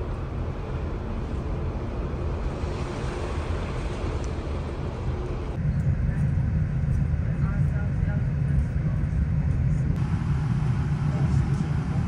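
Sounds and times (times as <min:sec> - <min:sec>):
ship low rumble: 0:00.0 - 0:12.0.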